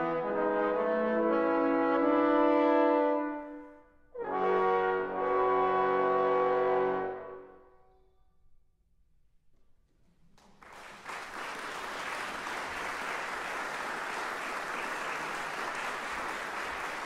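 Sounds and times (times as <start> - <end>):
audience applause: 10.4 - 17.0.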